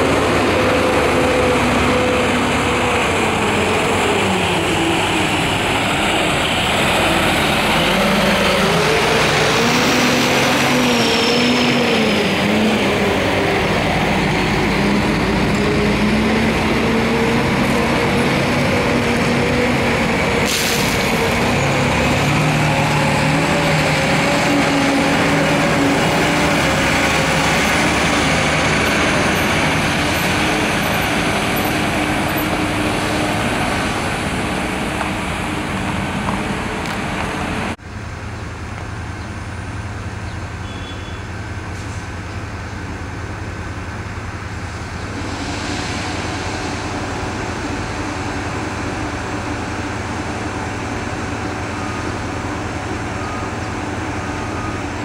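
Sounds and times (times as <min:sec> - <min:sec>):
wheel loader driving past: 0:00.0 - 0:38.2
distant diesel machinery drone: 0:00.0 - 0:55.0.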